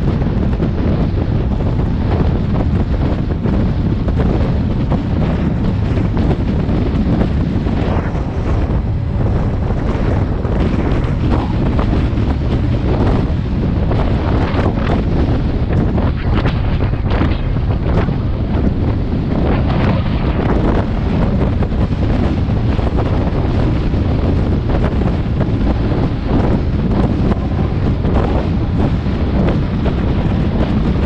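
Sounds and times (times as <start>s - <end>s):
wind rumble on microphone: 0.0s - 31.0s.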